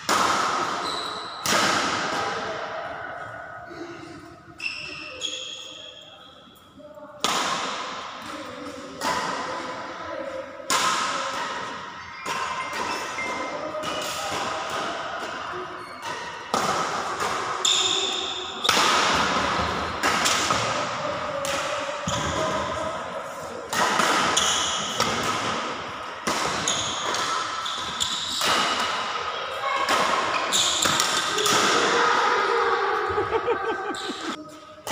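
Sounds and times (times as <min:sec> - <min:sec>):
racket hitting shuttlecock: 0:00.0 - 0:02.6, 0:07.2 - 0:09.8, 0:10.7 - 0:32.2.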